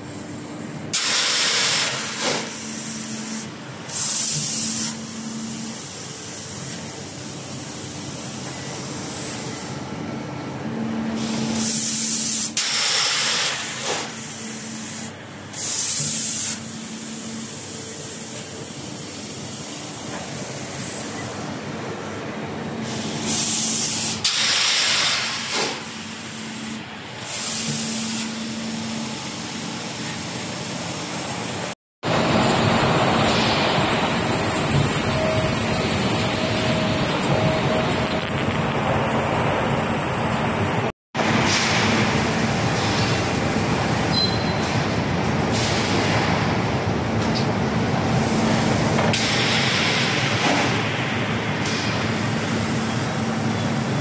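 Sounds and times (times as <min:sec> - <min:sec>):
steady machine hum: 0:00.0 - 0:44.1
compressed air hissing: 0:00.9 - 0:09.6, 0:11.2 - 0:21.2, 0:22.8 - 0:28.4.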